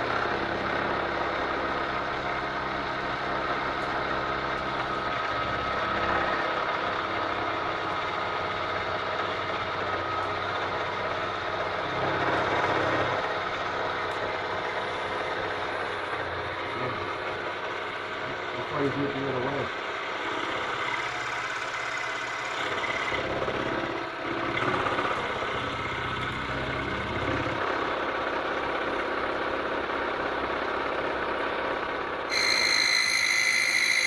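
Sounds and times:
milling machine cutting steel: 32.3 - 34.0.

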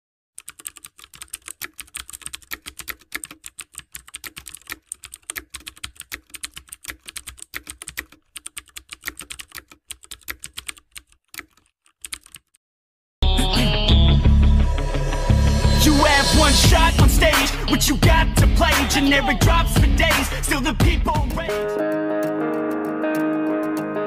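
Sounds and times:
keyboard typing: 0.4 - 12.6, 19.7 - 24.0.

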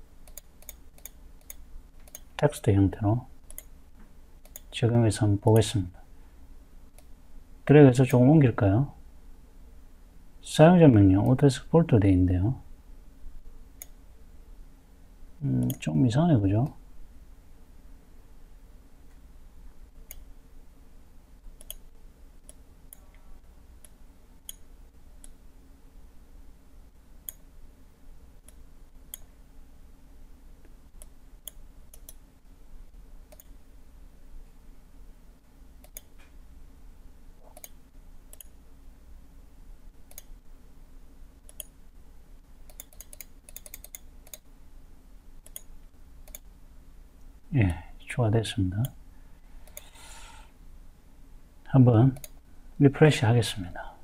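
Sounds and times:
low steady hum: 0.0 - 54.0
computer mouse clicking: 0.2 - 2.3, 3.5 - 3.7, 4.4 - 4.7, 21.6 - 23.2, 31.0 - 32.2, 33.3 - 33.6, 35.8 - 36.4, 37.4 - 38.6, 40.1 - 40.4, 41.4 - 41.8, 42.7 - 44.5, 45.4 - 46.5, 49.6 - 50.2, 52.2 - 52.4.

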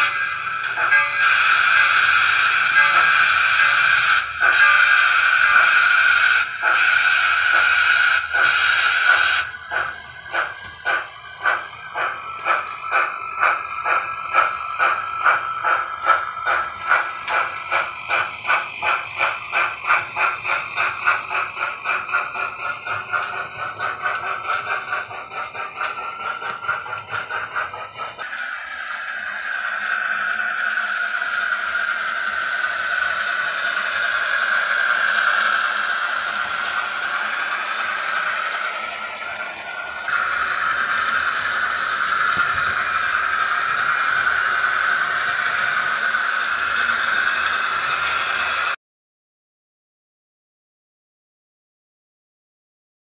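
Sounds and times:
chime whistle blasts: 0.0 - 41.5
steam exhaust chuffs: 0.0 - 48.8.

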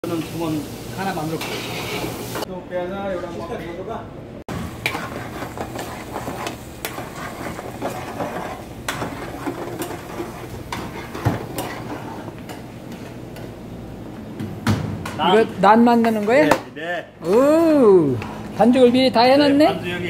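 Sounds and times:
metal pans and utensils clinking: 1.2 - 2.5, 4.7 - 13.5.

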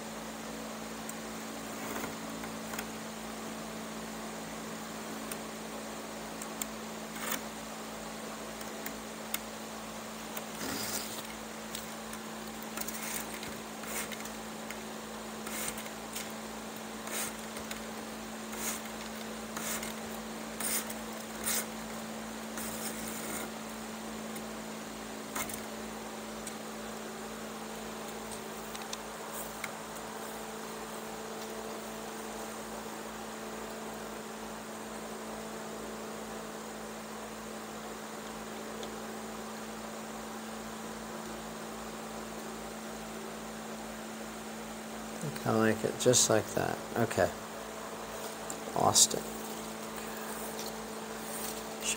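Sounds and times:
steady hum: 0.0 - 51.9
chair cane rustling and scratching: 10.4 - 14.8, 15.4 - 23.6, 28.0 - 32.4, 48.0 - 51.9.

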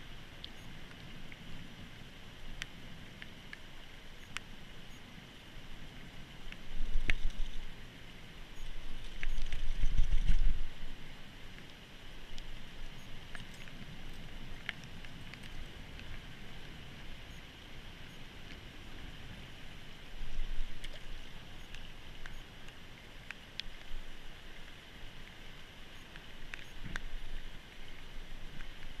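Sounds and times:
shallow river flowing: 0.0 - 29.0
faint clicks: 2.4 - 5.0, 6.4 - 7.7, 11.5 - 17.4, 20.6 - 29.0.

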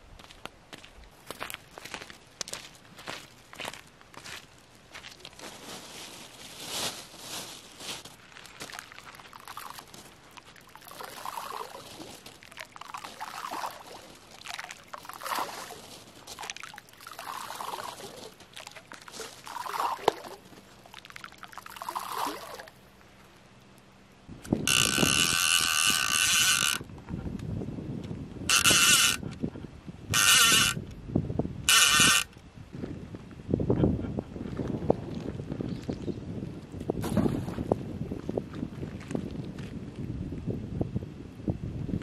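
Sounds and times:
water splashing: 8.4 - 22.9.

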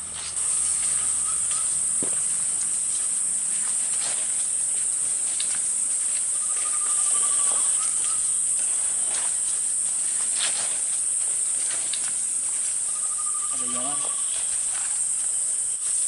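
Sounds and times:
footsteps in leaf litter: 0.0 - 16.0
insects droning: 0.0 - 16.0
bird trilling: 0.4 - 2.1, 6.1 - 9.4, 12.8 - 14.7.

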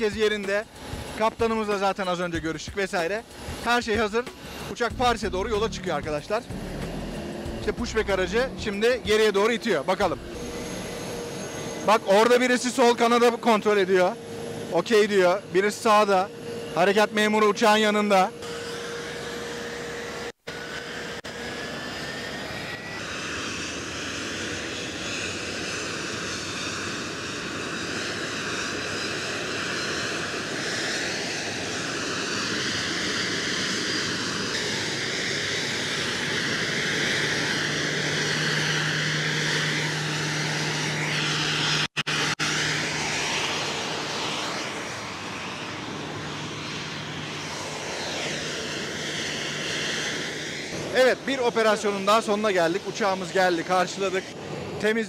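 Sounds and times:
jet turbine whine: 0.0 - 55.0
steady rumble: 2.4 - 11.9
tug engine hum: 4.3 - 9.1, 9.9 - 11.9.

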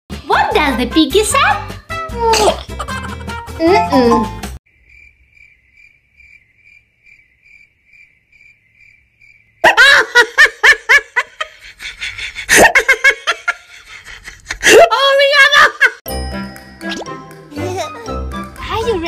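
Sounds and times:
loud laughter: 2.4 - 3.4, 9.6 - 16.0
crickets chirping: 4.7 - 9.6.

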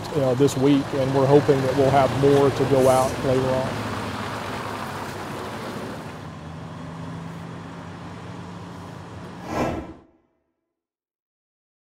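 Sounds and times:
diesel truck engine running: 0.0 - 9.4.

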